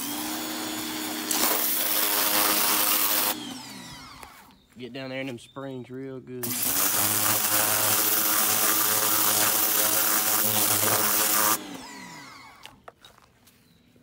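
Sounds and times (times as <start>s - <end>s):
pump motor humming: 0.0s - 4.5s, 6.4s - 12.8s
pressure washer water jet hissing: 0.7s - 3.4s, 6.4s - 11.8s.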